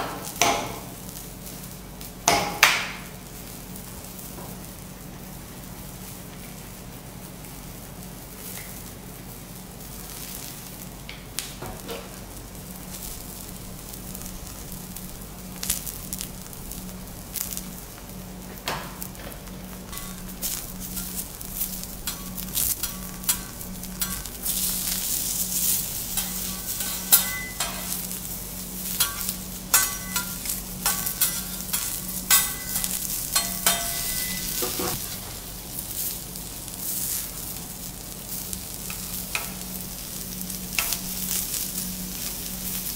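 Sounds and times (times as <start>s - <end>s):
vegetables sizzling on griddle: 0.1s - 42.9s
spatulas striking metal plate: 22.0s - 24.3s, 26.1s - 28.0s, 29.0s - 35.0s.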